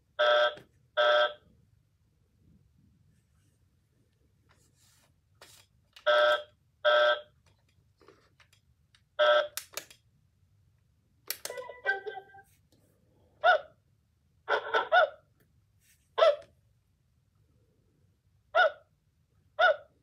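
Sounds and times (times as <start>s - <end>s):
clicks and short tones: 11.3s - 12.4s
robot toy dog beeping: 11.5s - 12.5s.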